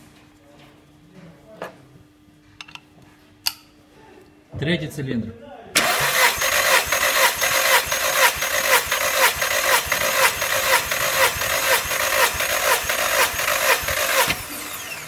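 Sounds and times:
starter motor cranking engine: 5.8s - 15.0s.

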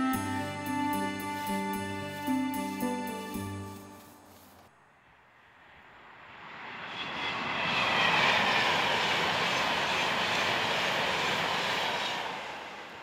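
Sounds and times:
vehicle passing: 4.2s - 11.6s.

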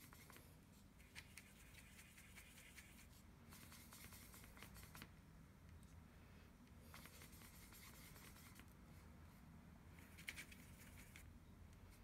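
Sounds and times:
paintbrush scratching in paint pan: 0.0s - 5.1s, 6.8s - 8.7s.

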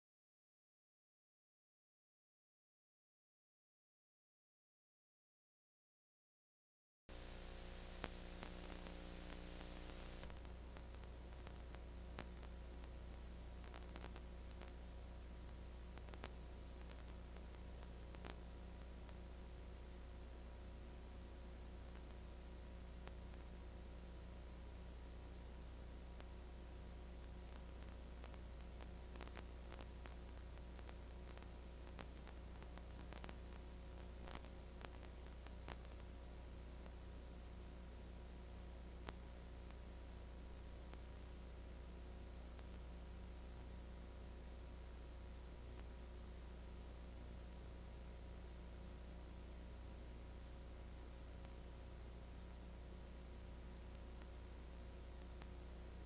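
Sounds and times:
faint clicks and pops: 7.1s - 19.8s, 21.8s - 23.6s, 25.5s - 37.7s, 38.3s - 46.7s, 50.4s - 56.0s
film hiss: 7.1s - 56.0s
low hum: 7.1s - 56.0s.

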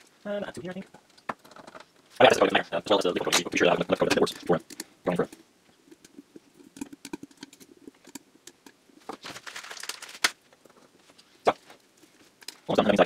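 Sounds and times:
rustling scrape: 9.0s - 12.7s.

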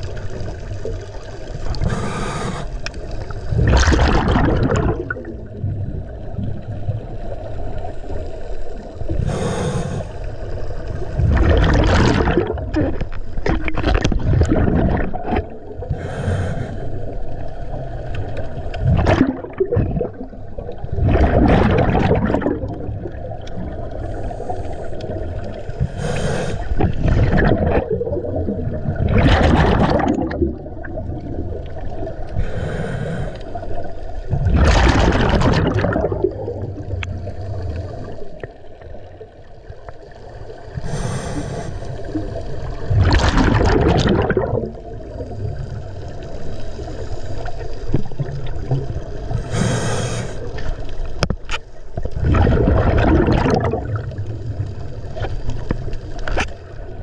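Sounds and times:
exhaled bubbles rushing: 0.0s - 16.2s, 17.0s - 32.6s, 33.5s - 41.2s, 41.9s - 46.6s, 47.2s - 51.3s, 51.9s - 57.0s
regulator breath hissing: 1.8s - 2.9s, 9.2s - 10.4s, 15.9s - 17.2s, 25.8s - 26.8s, 32.4s - 33.6s, 40.8s - 42.0s, 49.4s - 50.6s.

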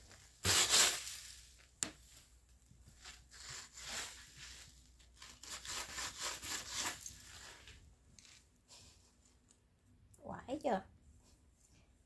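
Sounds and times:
hands scraping woven mat: 2.9s - 9.0s.

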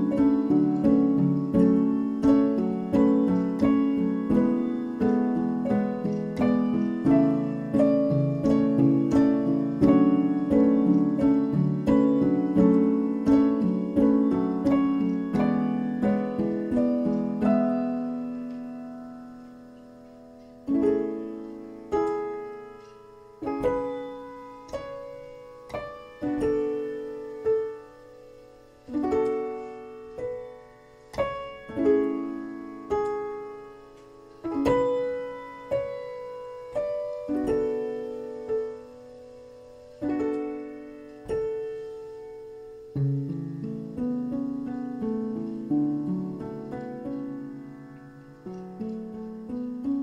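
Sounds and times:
gentle piano-like keyboard music: 0.0s - 50.0s.

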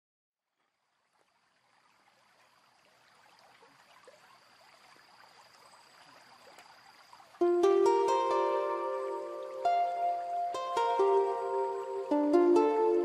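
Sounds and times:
faint crackling hiss: 0.6s - 13.0s
thin steady high tone: 4.2s - 13.0s.

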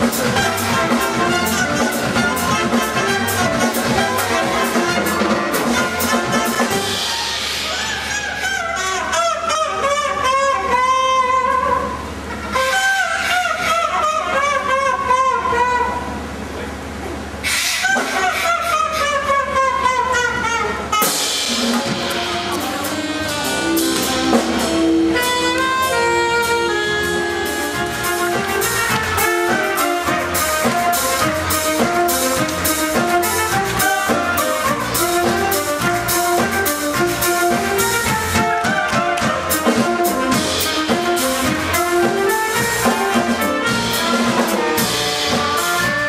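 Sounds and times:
drum kit beat: 0.0s - 8.6s, 17.8s - 46.0s
band playing jazzy music: 0.0s - 16.2s, 17.4s - 46.0s.

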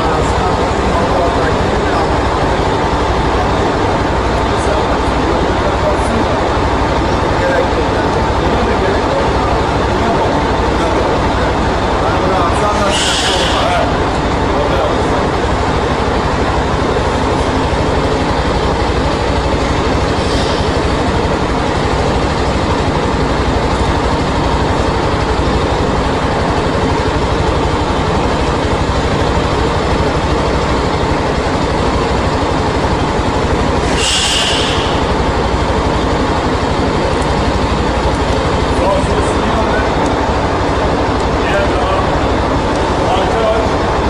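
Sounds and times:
motorcycle engine idling: 0.0s - 44.0s
short hiss: 12.9s - 13.6s, 33.9s - 35.0s.

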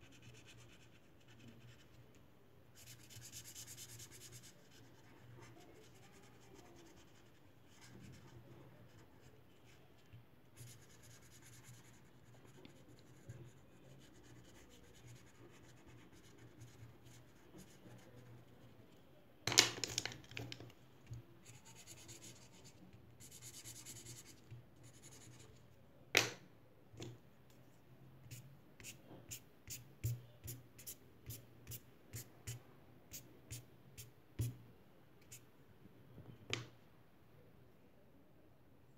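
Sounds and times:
marker scratching on paper: 2.8s - 9.7s, 21.4s - 25.5s, 28.2s - 34.5s.

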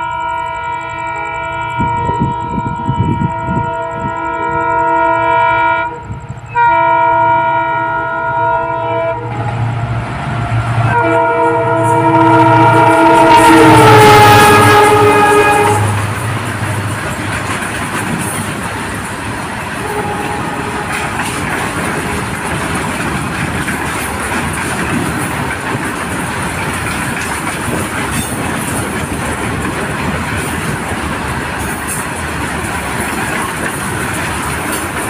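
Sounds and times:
locomotive horn: 0.0s - 17.0s, 19.8s - 22.4s
train wheels clacking over rail joints: 10.9s - 35.0s.

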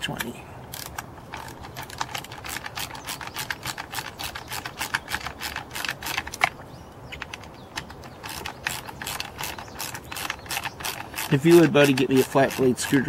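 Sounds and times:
ratcheting screwdriver clicking: 7.2s - 13.0s.

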